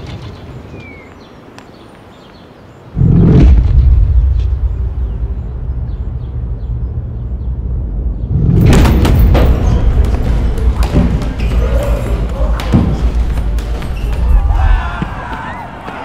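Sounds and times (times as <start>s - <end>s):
deep cinematic rumble drone: 3.0s - 11.0s
sharp hits: 8.3s - 11.6s.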